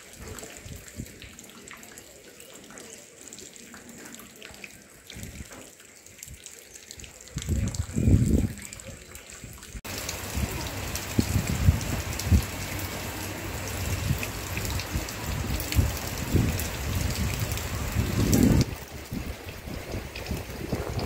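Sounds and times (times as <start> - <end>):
rain falling: 0.0 - 21.0
wind gusts on microphone: 7.3 - 21.0.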